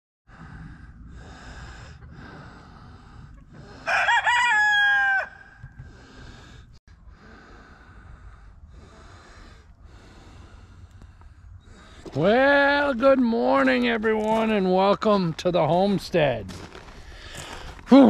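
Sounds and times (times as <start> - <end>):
rooster crowing: 3.8 - 5.7.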